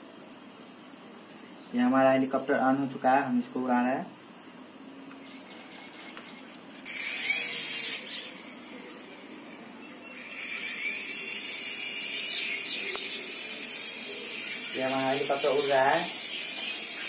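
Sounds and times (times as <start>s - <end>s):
toy helicopter rotors whining: 5.6s - 17.0s.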